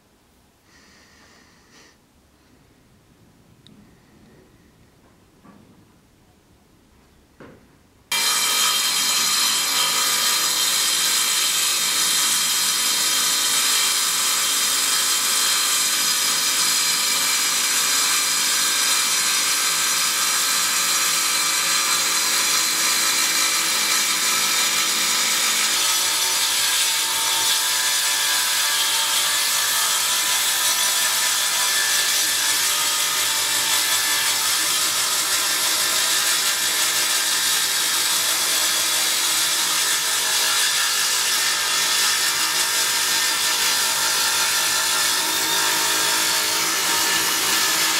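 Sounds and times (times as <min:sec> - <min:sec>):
table saw cutting wood: 0:08.1 - 0:47.9.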